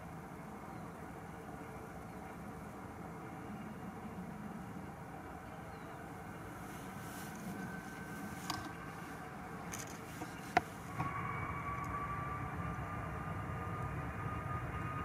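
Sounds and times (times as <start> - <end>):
distant jet engines: 0.0 - 15.0
steady whine: 0.0 - 15.0.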